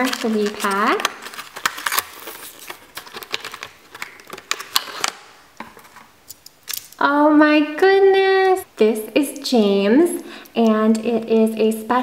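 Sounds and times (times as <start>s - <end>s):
cardboard tearing: 0.0s - 5.2s
plastic clicks and crackles: 0.0s - 7.0s.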